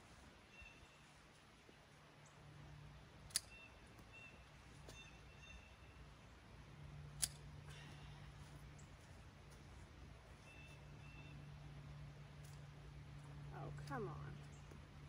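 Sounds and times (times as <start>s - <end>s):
pruning shears snipping branches: 3.2s - 4.1s, 7.1s - 7.8s.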